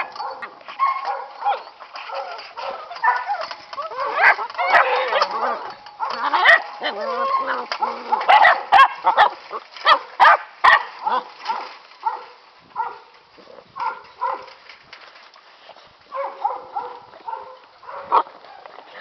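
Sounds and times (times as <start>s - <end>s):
puppies yipping and whining: 0.0s - 10.0s.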